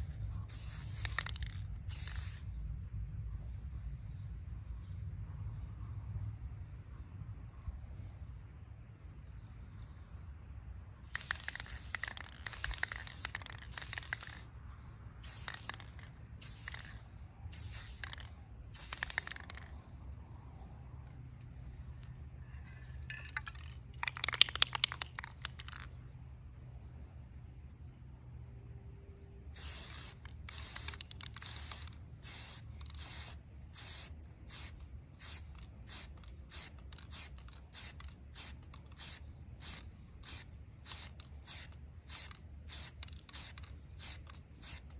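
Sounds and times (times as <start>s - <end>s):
spray paint can hissing: 0.4s - 2.5s, 11.1s - 19.9s, 23.1s - 25.9s, 29.6s - 44.9s
clattering spray burst: 0.5s - 2.4s, 11.1s - 14.5s, 15.2s - 19.8s, 29.6s - 44.9s.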